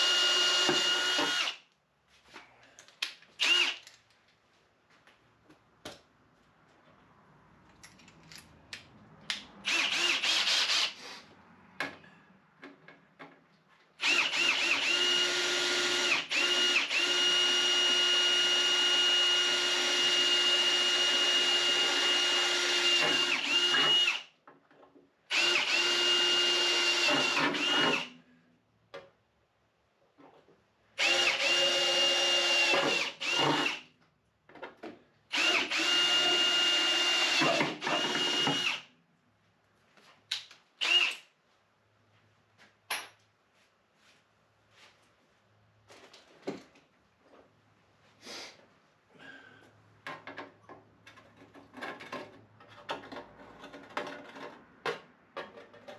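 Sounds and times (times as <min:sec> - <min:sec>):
cordless drill whining: 0:00.0 - 0:01.6, 0:03.4 - 0:03.8, 0:09.7 - 0:11.0, 0:14.0 - 0:24.3, 0:25.3 - 0:28.1, 0:31.0 - 0:33.8, 0:35.3 - 0:38.9, 0:40.8 - 0:41.2.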